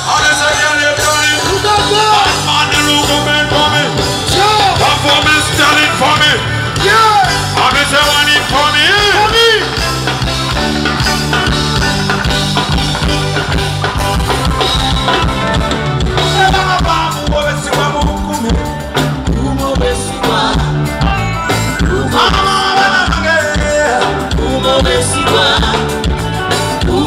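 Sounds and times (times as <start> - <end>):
man singing: 0.0 - 9.8, 16.2 - 27.0
live band playing upbeat song: 0.0 - 27.0.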